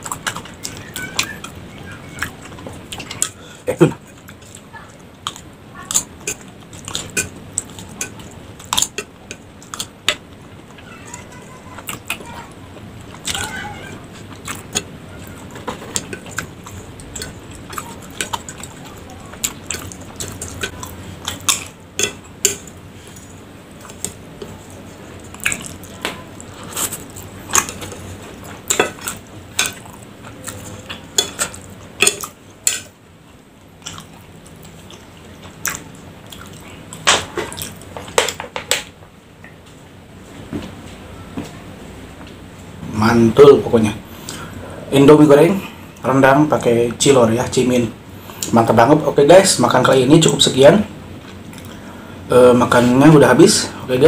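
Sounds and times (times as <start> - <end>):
wet chewing: 0.0 - 38.4.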